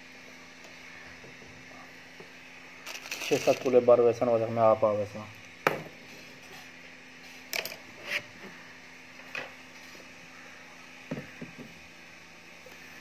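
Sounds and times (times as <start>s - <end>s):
faint steady hum: 0.0s - 13.0s
light clicks and rustles of beads: 2.8s - 3.8s.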